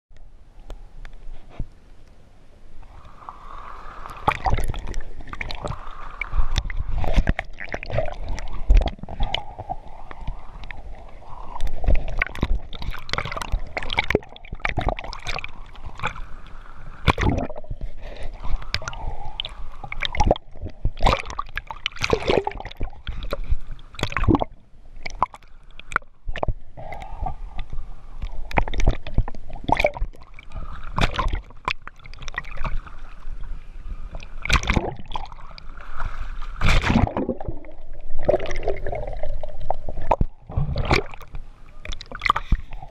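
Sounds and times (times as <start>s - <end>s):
seawater sloshing and splashing: 17.0s - 24.4s, 34.2s - 42.7s.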